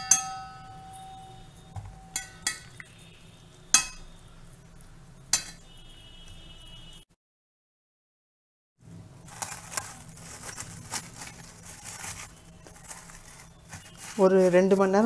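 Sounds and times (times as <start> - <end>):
cling film crinkling: 9.2 - 15.0.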